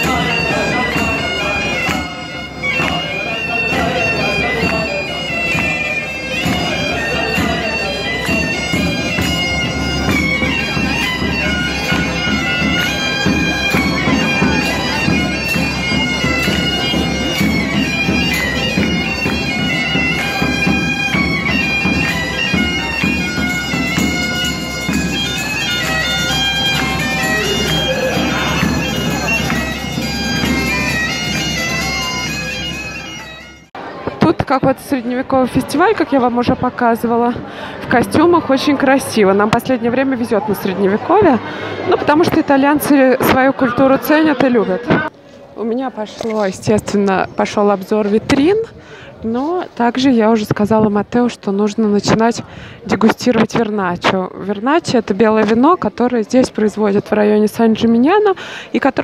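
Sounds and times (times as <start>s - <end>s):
bagpipes playing over a drone: 0.0s - 33.8s
drum beating: 0.0s - 34.7s.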